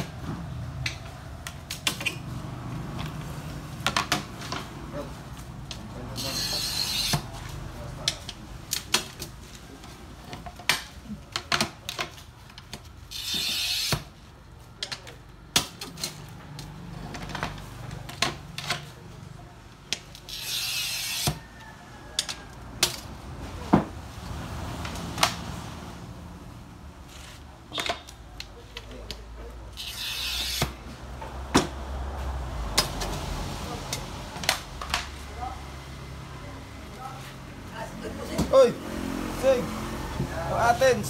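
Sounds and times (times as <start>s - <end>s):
glass cutter scoring glass: 6.2s - 7.3s, 13.1s - 14.1s, 20.1s - 21.4s, 29.7s - 30.8s.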